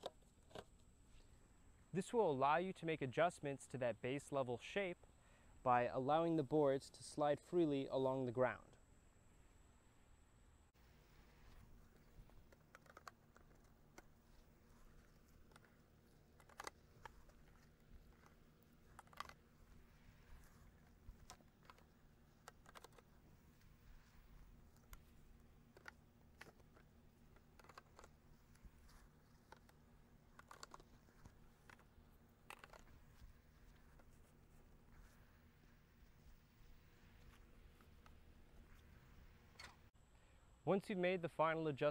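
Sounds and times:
plastic stakes clicking and knocking: 11.6s - 38.9s.

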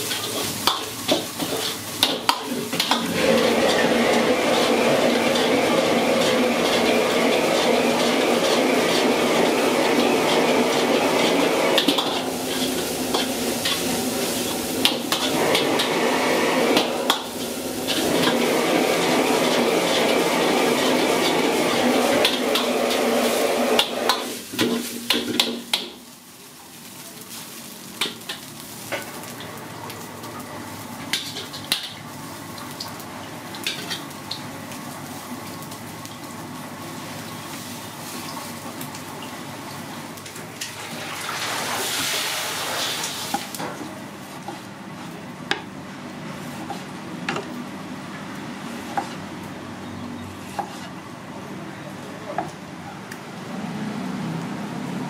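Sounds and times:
metal clanking on a wok: 0.0s - 16.0s, 16.7s - 26.0s, 33.5s - 34.4s
ladle scraping a wok: 0.0s - 25.7s, 46.3s - 46.9s, 48.6s - 49.3s, 50.4s - 51.0s
rice sizzling in a wok: 0.0s - 51.6s.

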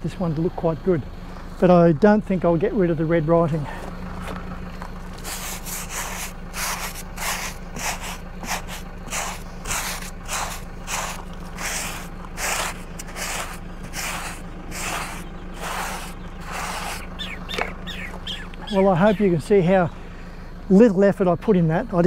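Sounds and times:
scrubbing rubber tyre by hand: 4.2s - 19.1s.

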